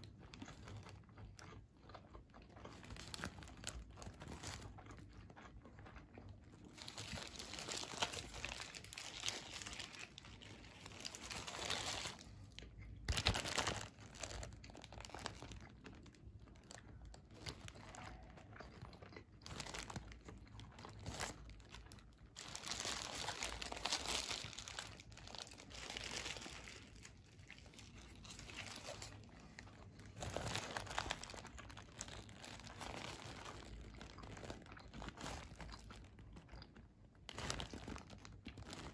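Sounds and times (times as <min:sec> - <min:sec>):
crunching bites: 0:06.7 - 0:16.1
paper wrapper crinkling: 0:06.8 - 0:12.4, 0:13.0 - 0:18.4, 0:19.4 - 0:20.2, 0:20.8 - 0:36.0, 0:37.3 - 0:38.9.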